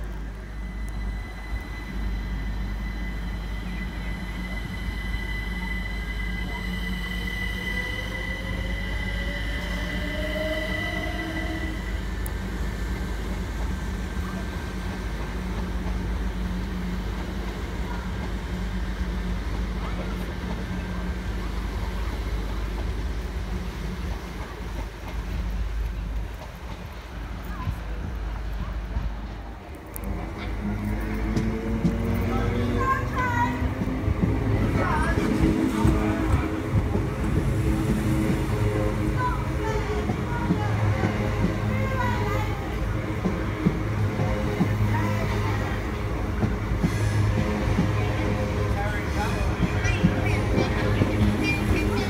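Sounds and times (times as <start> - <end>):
steady high tones: 0.0 - 14.9
train wheels rumbling on rail: 0.0 - 52.0
train whine rising in pitch: 0.0 - 52.0.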